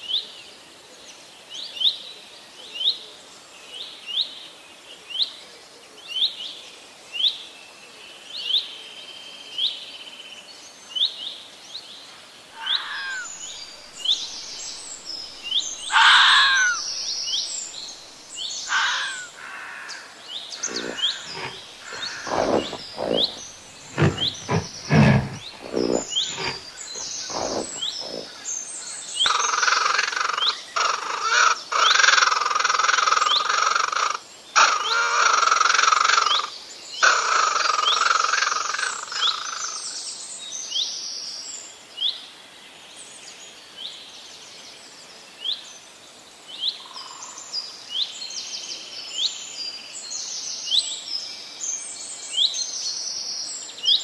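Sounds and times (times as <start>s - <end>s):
small birds chirping: 12.6s - 29.5s
loud rasping buzz: 20.6s - 28.3s.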